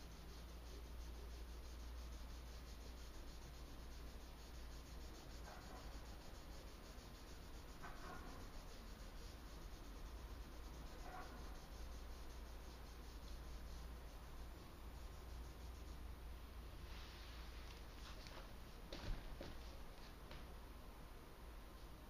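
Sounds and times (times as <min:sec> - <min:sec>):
pencil scratching on paper: 0:00.0 - 0:16.1
low steady hum: 0:00.0 - 0:22.0.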